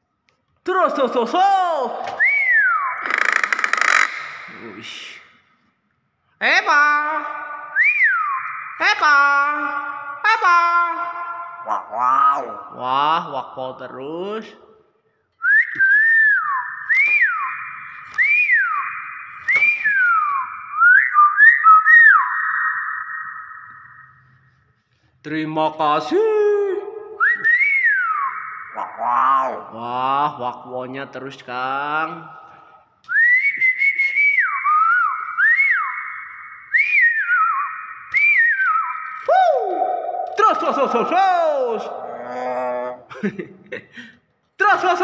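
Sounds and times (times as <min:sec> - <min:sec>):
myna bird whistling: 0:02.0 - 0:04.4, 0:07.4 - 0:10.3, 0:15.4 - 0:24.8, 0:27.2 - 0:29.8, 0:33.1 - 0:42.0.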